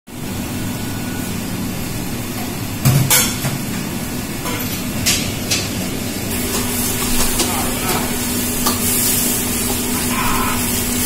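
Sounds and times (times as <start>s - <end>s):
kitchen equipment humming: 0.1s - 11.0s.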